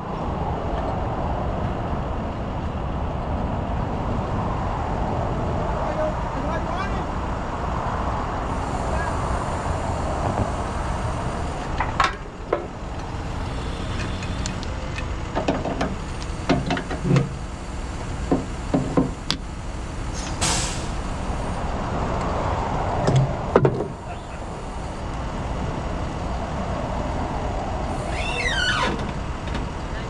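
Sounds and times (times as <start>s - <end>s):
diesel truck engine running: 0.0s - 30.0s
knocks and clunks: 11.7s - 13.2s, 13.8s - 17.4s, 18.2s - 19.5s, 23.0s - 24.0s
air brake hiss: 20.1s - 21.1s.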